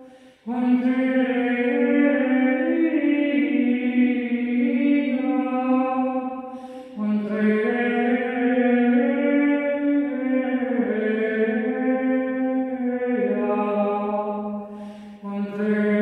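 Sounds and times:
woman breathing: 0:00.0 - 0:00.5, 0:06.4 - 0:07.0, 0:14.6 - 0:15.2
woman singing wordless melody: 0:00.0 - 0:16.0.

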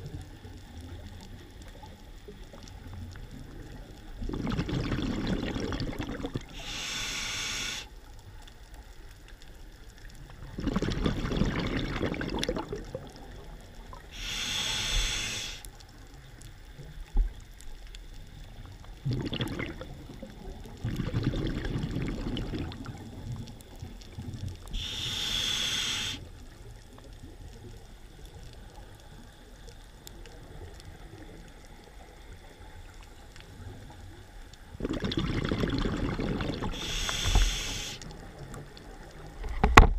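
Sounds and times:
exhaled air bubbling: 0:00.0 - 0:08.6, 0:09.8 - 0:39.9
regulator hissing inhalations: 0:06.5 - 0:08.0, 0:14.1 - 0:15.7, 0:24.7 - 0:26.3, 0:36.6 - 0:38.1.

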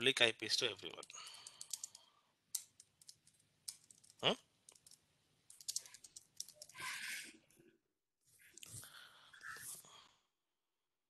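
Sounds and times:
typing on computer keyboard: 0:01.4 - 0:06.8.

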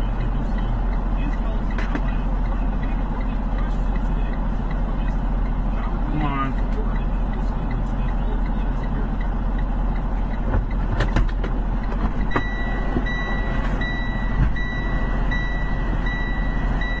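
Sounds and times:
road and cabin noise: 0:00.0 - 0:17.0
vehicle engine running: 0:00.0 - 0:17.0
clicks: 0:10.3 - 0:15.4
high electronic warning beeps: 0:12.2 - 0:17.0.

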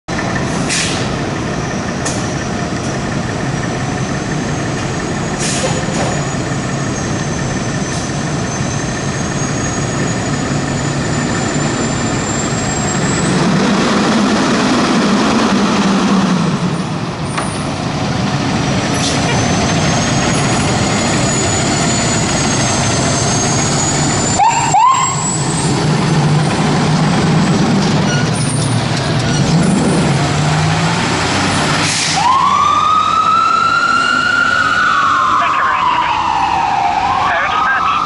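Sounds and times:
diesel engine running and revving: 0:00.1 - 0:38.0
air brake hissing: 0:00.6 - 0:01.1, 0:05.4 - 0:06.1.

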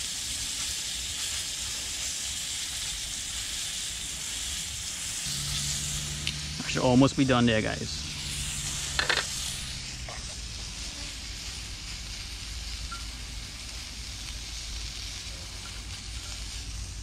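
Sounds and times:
fish frying in hot oil: 0:00.0 - 0:17.0.

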